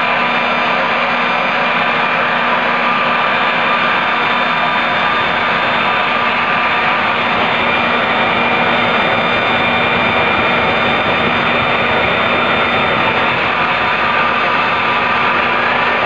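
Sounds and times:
jet exhaust rushing: 0:00.0 - 0:16.0
turbo whine: 0:00.0 - 0:16.0.

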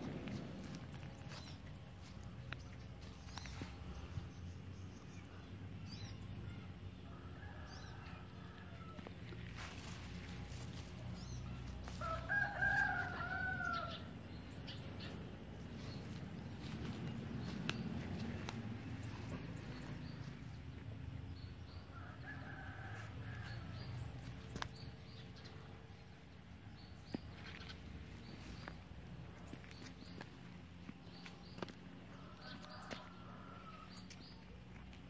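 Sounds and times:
rooster crowing: 0:07.1 - 0:09.7, 0:11.9 - 0:14.1, 0:21.9 - 0:23.8, 0:32.1 - 0:34.0.

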